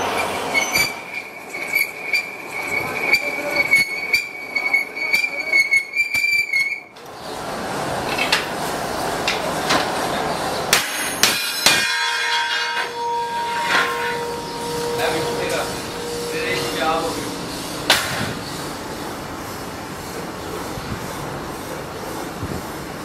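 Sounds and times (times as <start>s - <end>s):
lathe tool squealing against metal: 0.0s - 6.9s, 11.1s - 18.8s
lathe running: 12.9s - 23.0s.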